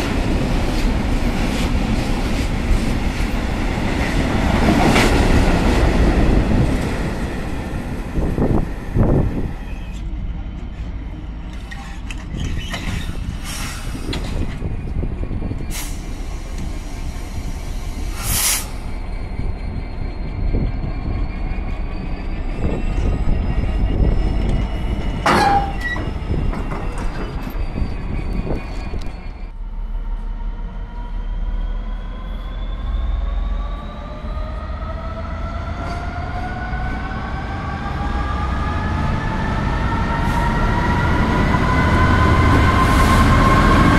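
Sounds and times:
freight train engine and wheel rumble: 0.0s - 43.9s
wheel squeals: 11.6s - 14.2s, 18.7s - 29.6s.

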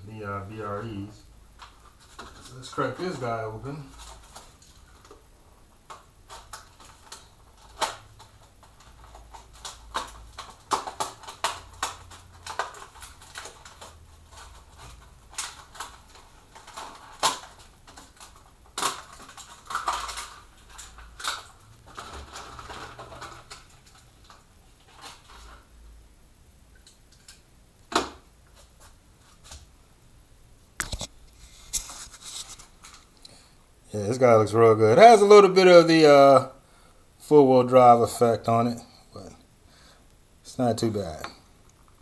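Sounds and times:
packaging rustling: 1.6s - 5.2s, 5.9s - 25.8s
packaging clicks and snaps: 5.9s - 24.4s.

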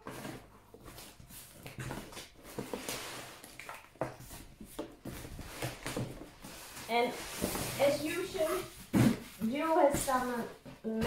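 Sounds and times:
cardboard box rustling and knocks: 8.7s - 10.3s.

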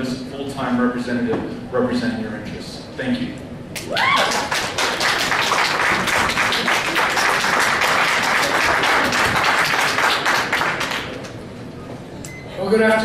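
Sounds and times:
audience applauding: 3.8s - 11.4s.

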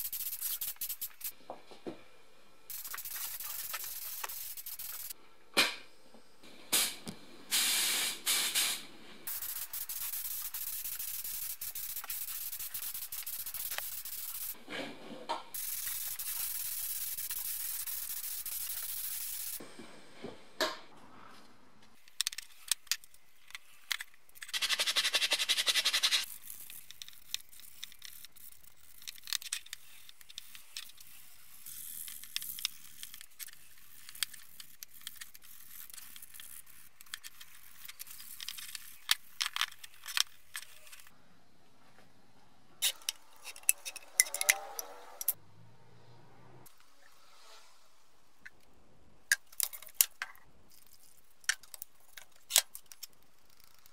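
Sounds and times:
metal parts and tools clicking: 0.0s - 1.3s, 9.3s - 14.6s, 26.1s - 41.1s, 42.8s - 45.4s, 49.3s - 53.9s
spray gun hissing: 2.7s - 5.2s, 6.8s - 14.6s.

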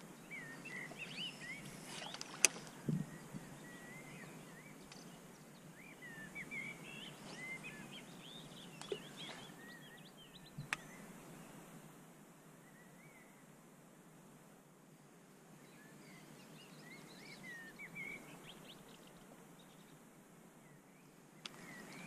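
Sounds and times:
small birds chirping: 0.0s - 11.6s, 15.6s - 20.0s, 20.6s - 22.0s
soft low thump: 2.8s - 3.5s.

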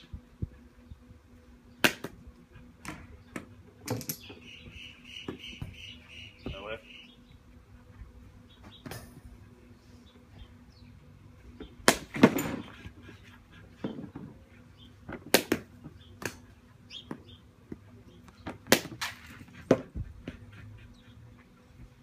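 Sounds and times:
cricket bat striking balls: 1.8s - 2.2s, 11.8s - 12.4s, 15.1s - 16.4s, 18.5s - 19.9s.

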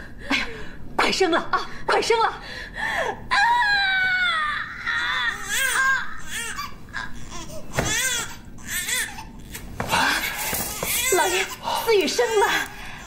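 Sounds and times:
newborn baby crying: 3.7s - 13.0s.

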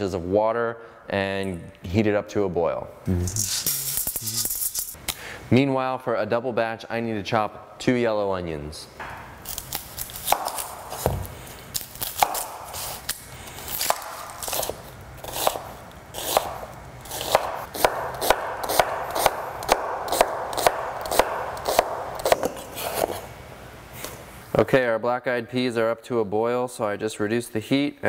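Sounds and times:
knife chopping on cutting board: 10.2s - 11.3s, 16.2s - 23.2s.

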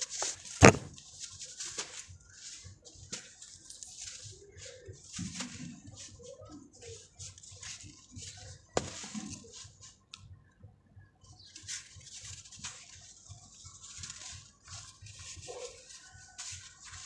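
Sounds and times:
sand grains pattering on floor: 0.0s - 10.3s, 11.2s - 17.0s
sharp crack: 0.6s - 1.0s.

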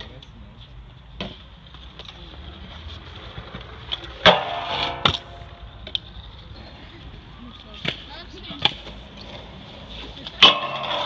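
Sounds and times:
scooter hitting metal rail: 4.2s - 6.0s, 10.4s - 11.0s.

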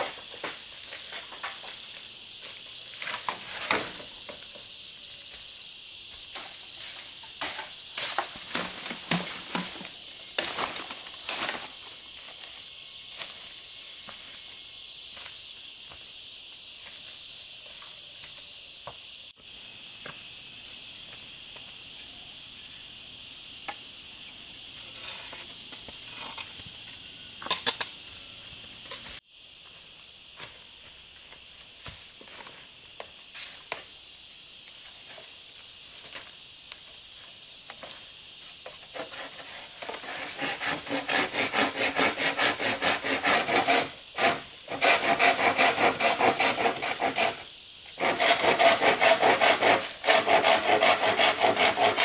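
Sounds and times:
forest insects buzzing: 0.0s - 52.0s
handling rustles and knocks: 6.4s - 11.9s.

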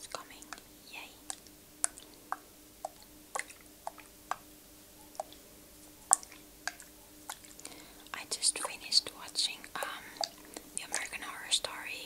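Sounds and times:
faint steady hum: 0.0s - 12.0s
wet mouth clicks and lip smacks: 1.3s - 4.4s, 5.2s - 5.4s.

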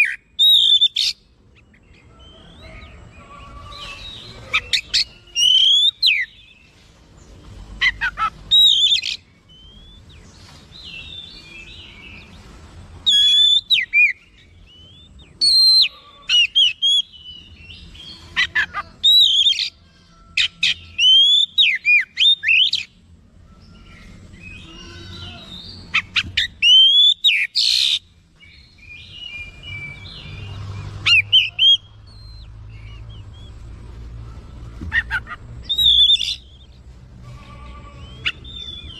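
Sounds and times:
bird singing whistles and chatter: 0.0s - 1.2s, 2.3s - 6.4s, 7.8s - 10.1s, 13.0s - 17.2s, 18.4s - 22.9s, 23.6s - 30.3s, 35.0s - 36.7s.

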